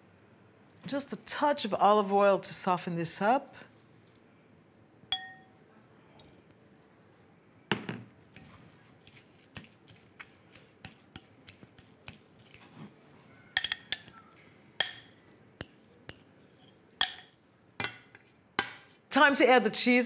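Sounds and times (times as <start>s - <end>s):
fork mashing in glass bowl: 8.2s - 19.0s.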